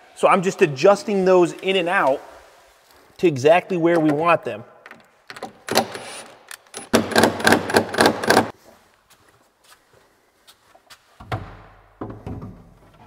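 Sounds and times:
sharp clicks and knocks: 4.8 - 8.5.

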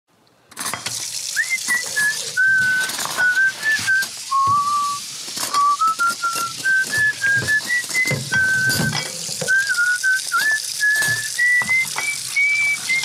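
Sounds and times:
person whistling a tune: 1.3 - 13.0.

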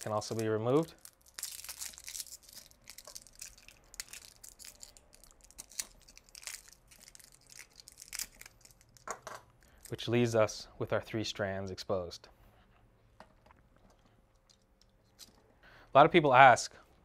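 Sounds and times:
wrapping crinkling and tearing: 0.0 - 10.0.

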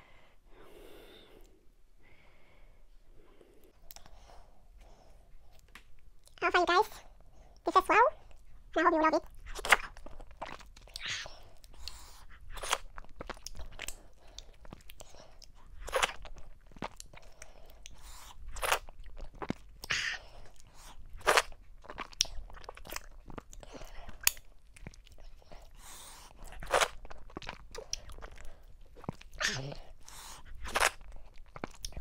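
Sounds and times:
wet chewing: 9.2 - 32.0.

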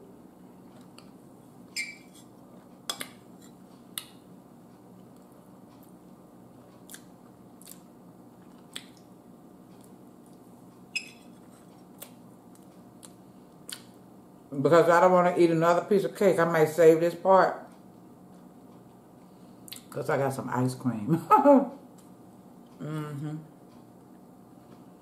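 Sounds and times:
soft chewing: 0.6 - 1.2, 2.1 - 14.5, 17.7 - 20.0.

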